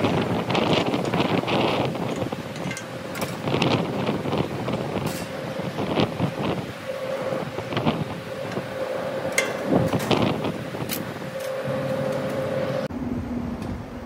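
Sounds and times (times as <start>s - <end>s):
mechanical hum: 0.0s - 14.0s
metallic clicks and knocks: 2.1s - 3.5s.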